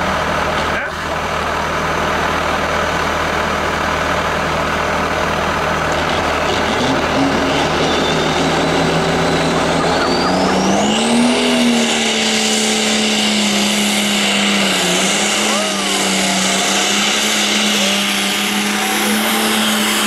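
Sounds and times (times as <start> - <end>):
tractor diesel engine revving: 0.0 - 20.0
turbo whine: 5.5 - 20.0.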